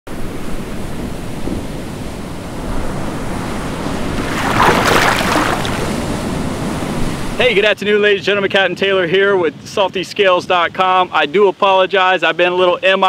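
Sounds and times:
ocean waves and surf: 0:00.1 - 0:07.5
breaking water rush: 0:02.2 - 0:07.4.

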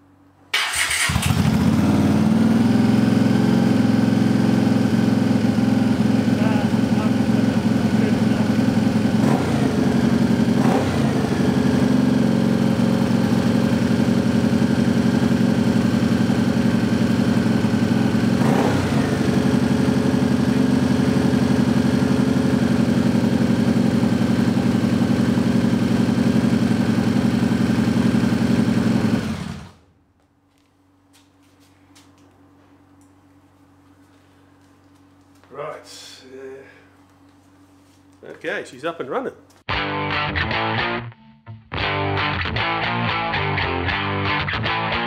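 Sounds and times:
motorcycle engine running: 0:00.7 - 0:29.9.

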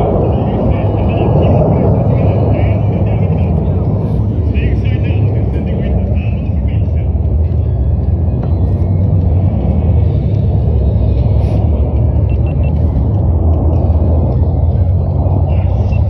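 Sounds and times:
distant jet rumble: 0:00.0 - 0:16.0.

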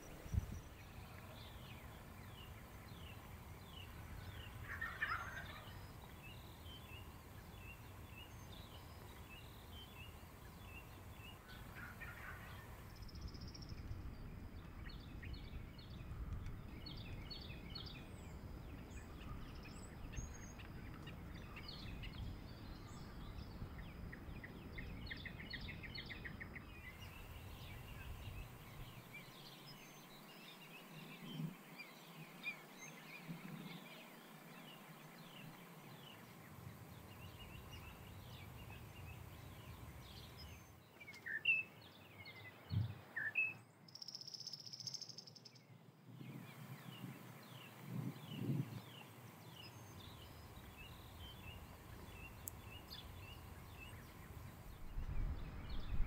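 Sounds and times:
small birds chirping: 0:00.0 - 0:56.0
low rumble: 0:54.7 - 0:56.0.

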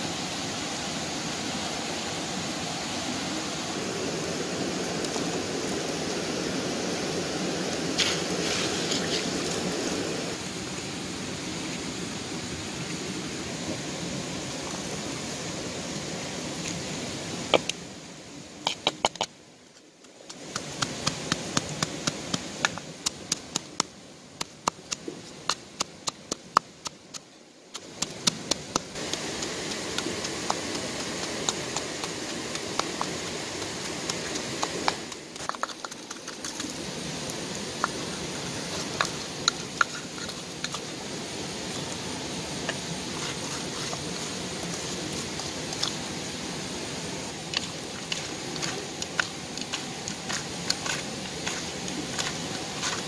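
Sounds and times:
steady hiss: 0:00.0 - 0:53.0
pestle pounding in wooden mortar: 0:20.0 - 0:27.2, 0:27.8 - 0:36.1.

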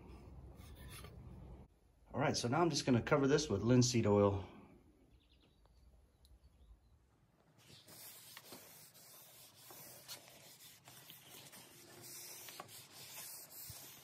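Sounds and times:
cloth rubbing wood: 0:07.6 - 0:14.0.

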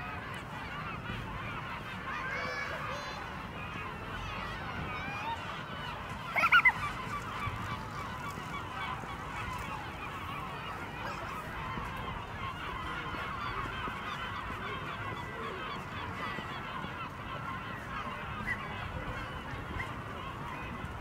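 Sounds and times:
flock of birds calling: 0:00.0 - 0:21.0.

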